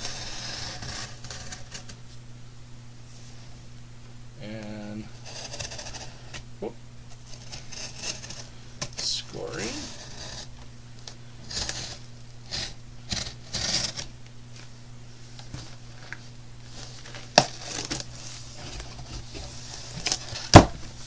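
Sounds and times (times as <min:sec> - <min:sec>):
box cutter scoring packing tape: 0:11.4 - 0:14.1, 0:17.1 - 0:18.8.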